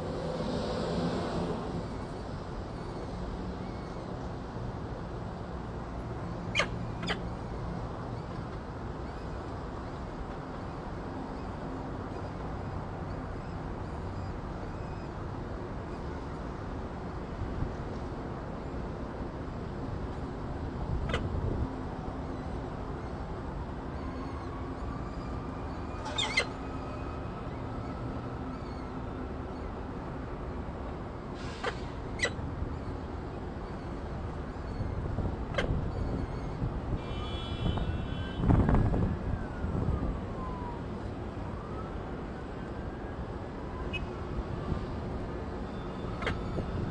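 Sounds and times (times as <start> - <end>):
falcon calls: 6.5 - 7.2, 26.1 - 26.5
falcons squeaky calls: 6.5 - 7.3, 25.9 - 26.7, 31.6 - 32.4.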